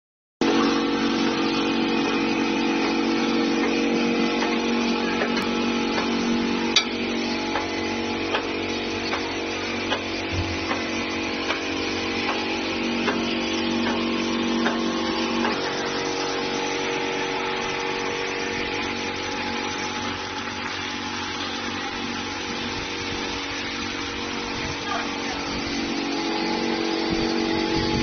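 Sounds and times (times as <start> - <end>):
machine motor hum: 0.4 - 28.0
sharp machine ticks: 2.8 - 20.3.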